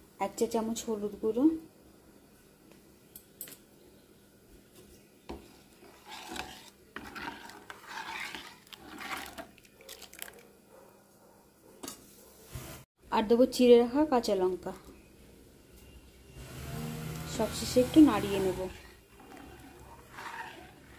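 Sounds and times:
metal spoon stirring in pot: 5.3s - 10.4s, 17.3s - 20.9s.

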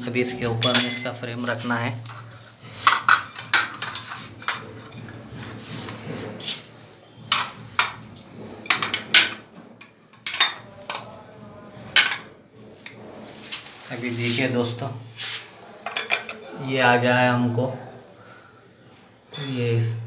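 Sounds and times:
metal parts clinking and knocking: 0.6s - 1.2s.

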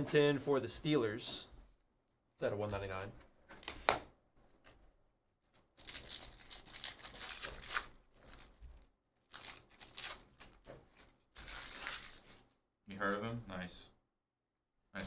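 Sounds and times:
foil wrapper tearing and crinkling: 5.8s - 8.6s, 9.2s - 12.4s.

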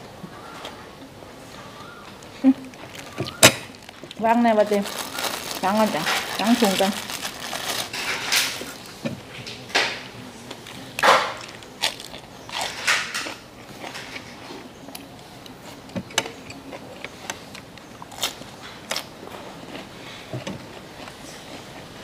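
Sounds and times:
lettuce leaves folding: 2.7s - 8.8s
plastic bag rustling: 2.8s - 8.9s.

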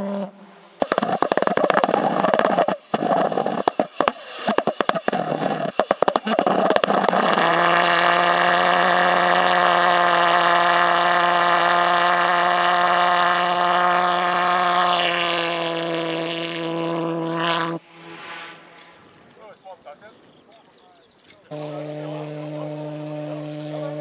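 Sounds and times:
pulse jet engine buzzing drone: 0.0s - 19.9s, 21.5s - 24.0s.

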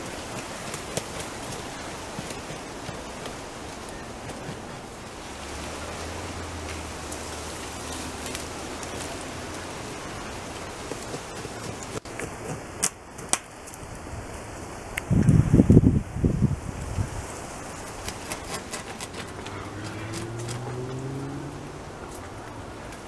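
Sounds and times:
beaver gnawing wood: 0.0s - 14.4s, 17.4s - 23.0s
rapid crunching bites: 17.8s - 20.7s.

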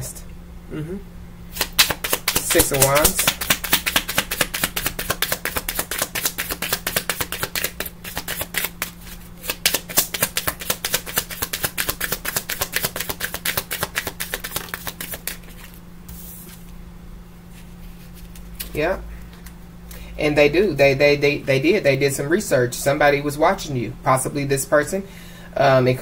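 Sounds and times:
cards being shuffled: 1.5s - 16.8s, 17.5s - 18.8s.

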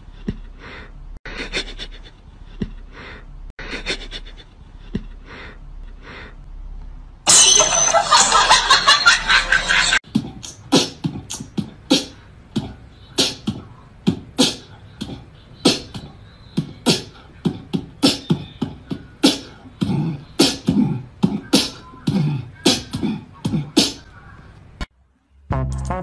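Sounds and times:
beatboxing: 10.0s - 24.1s.

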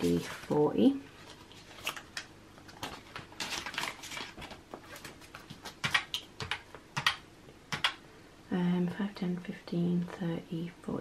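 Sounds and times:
banknotes and plastic rustling: 0.0s - 6.6s
calculator keys clicking: 5.8s - 8.0s.

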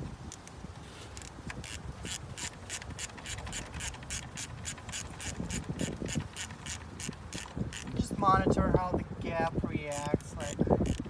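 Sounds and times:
hand ratchet clicking: 0.2s - 8.0s, 9.9s - 11.0s.

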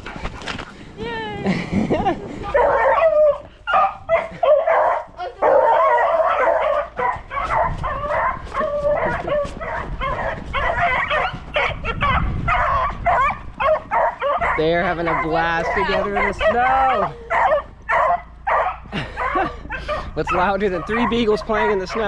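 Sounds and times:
dogs barking and yipping: 1.5s - 22.0s.

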